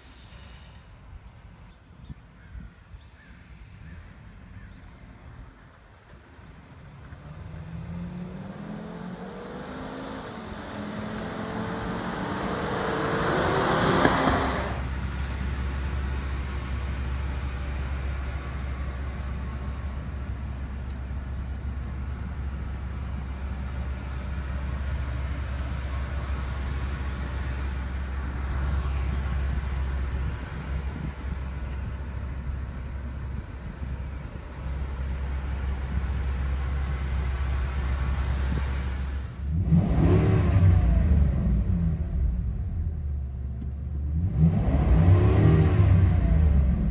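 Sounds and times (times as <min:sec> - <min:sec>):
vehicle passing close: 0:06.8 - 0:42.7
truck engine idling: 0:14.8 - 0:39.5.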